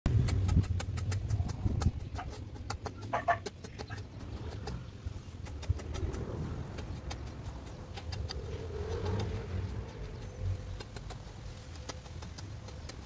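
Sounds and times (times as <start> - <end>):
chicken clucking: 0.4 - 4.8
low rumble: 3.9 - 11.9.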